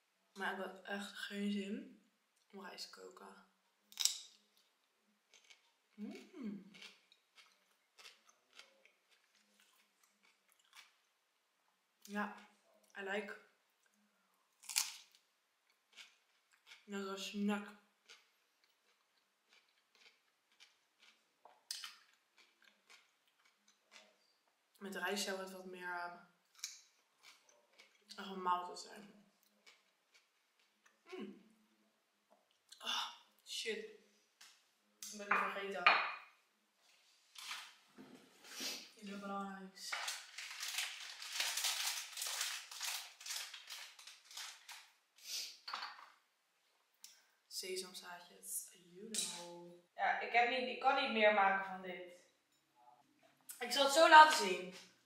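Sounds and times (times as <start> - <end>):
chewing raw cucumber: 5.3 - 11.1, 18.0 - 24.2, 26.5 - 28.2, 29.2 - 31.0.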